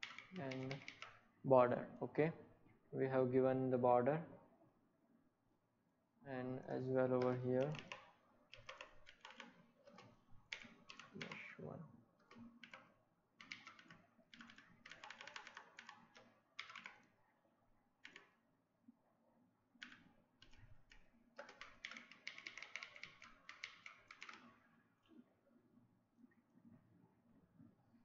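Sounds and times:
typing on a keyboard: 0.0 - 1.2, 7.0 - 11.6, 12.2 - 17.2, 18.0 - 18.4, 19.8 - 24.6.

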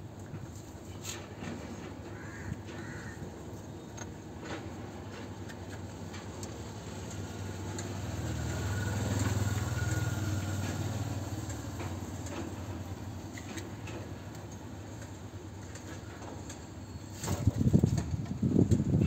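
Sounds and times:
vehicle engine humming: 0.0 - 19.0
faint timing belt clicks: 4.0 - 16.6.

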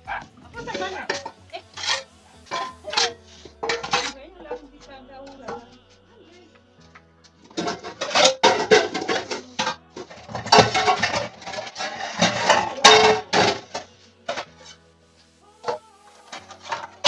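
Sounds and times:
faint background music: 0.0 - 17.0
dishes and pots clattering: 0.6 - 4.2, 7.4 - 14.8.

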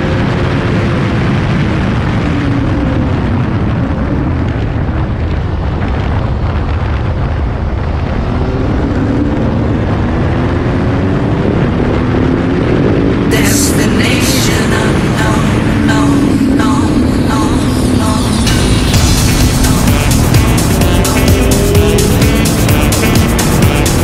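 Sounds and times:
motorcycle engine: 0.0 - 24.0
wind rush: 0.0 - 24.0.

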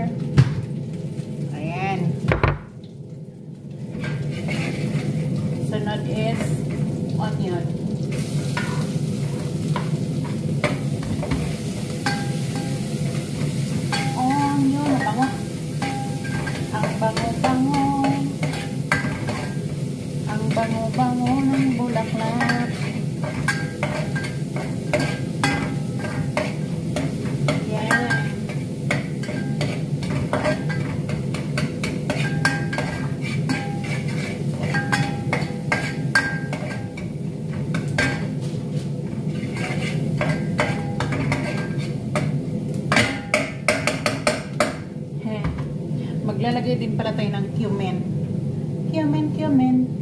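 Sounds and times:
meat sizzling: 0.0 - 45.1
knocks on pot: 2.3 - 2.7
utensil scraping saucepan: 3.9 - 5.2, 8.5 - 42.3.

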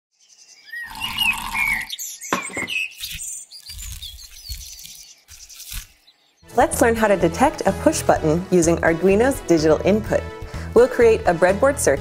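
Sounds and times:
chirping gliding whistles: 0.2 - 5.8.

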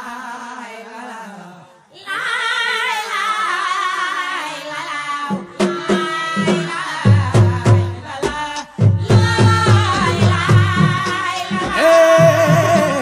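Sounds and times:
high solo voice singing: 0.0 - 13.0
drums and bass beat: 5.6 - 13.0.

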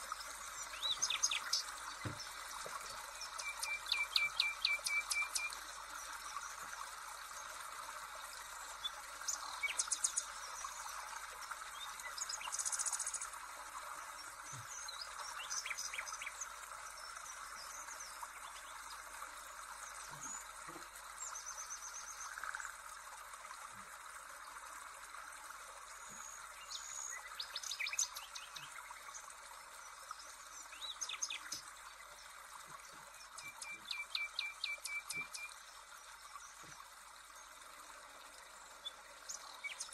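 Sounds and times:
birds chirping and trilling: 0.2 - 2.4, 3.1 - 5.6, 32.8 - 35.5, 38.8 - 39.9.

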